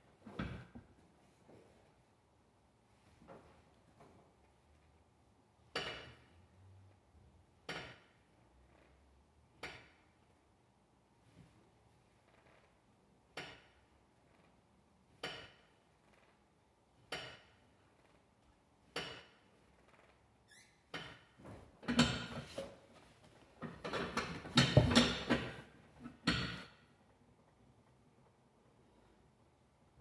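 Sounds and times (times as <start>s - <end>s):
knocks and rustling: 21.0s - 26.7s.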